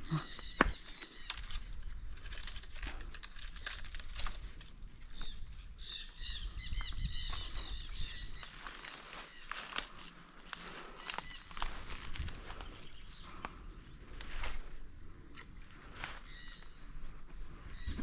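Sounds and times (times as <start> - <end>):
bird singing: 0.0 - 18.0
clicks and rustles: 0.6 - 5.6.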